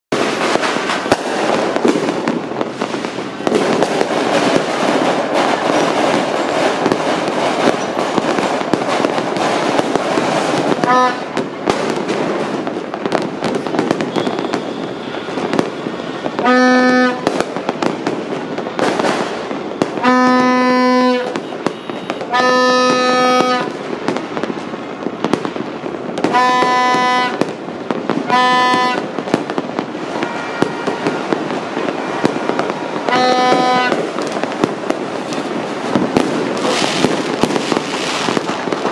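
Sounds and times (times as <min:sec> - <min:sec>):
fireworks crackling and banging: 0:00.1 - 0:38.9
horn blasts: 0:10.8 - 0:11.4, 0:14.1 - 0:17.2, 0:20.0 - 0:23.7, 0:26.3 - 0:27.4, 0:28.3 - 0:29.2, 0:30.0 - 0:34.1.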